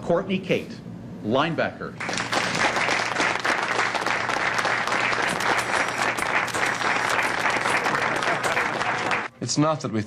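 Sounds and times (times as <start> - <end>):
people applauding: 2.0 - 9.3.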